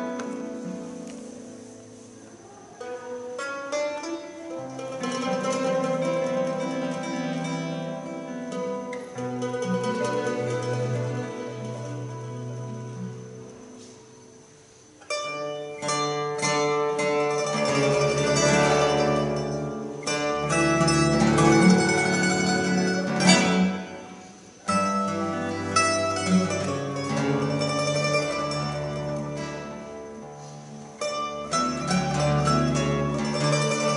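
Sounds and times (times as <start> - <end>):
classical guitar: 0.0 - 33.9
mandolin: 0.0 - 33.9
double bass: 4.8 - 13.7, 17.2 - 33.9.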